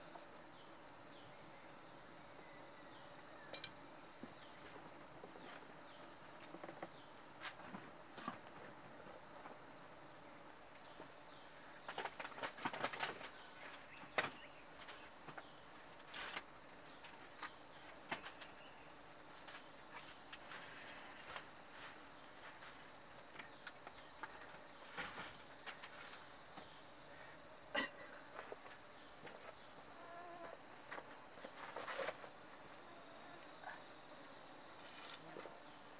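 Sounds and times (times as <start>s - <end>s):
high insect drone: 0.0s - 35.9s.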